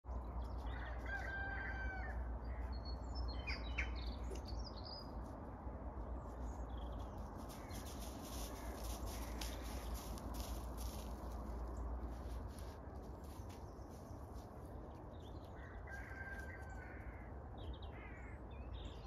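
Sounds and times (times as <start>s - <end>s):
rooster crowing: 0.6s - 2.6s, 15.6s - 17.3s
steady low rumble: 2.0s - 15.9s
small birds chirping: 2.6s - 5.4s, 6.0s - 15.8s.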